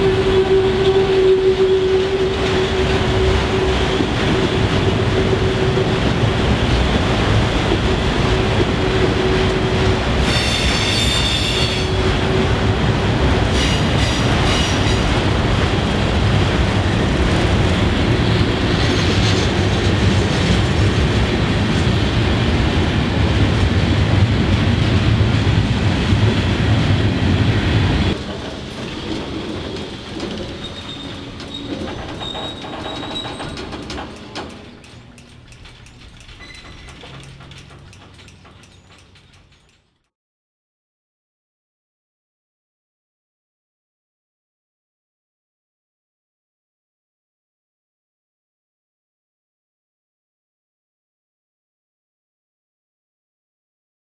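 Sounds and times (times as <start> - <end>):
train wheel squeal: 0.0 - 6.0, 8.8 - 12.4, 13.5 - 15.2, 18.8 - 19.8, 28.4 - 39.9
steel wheels rumbling on rail: 0.0 - 40.1.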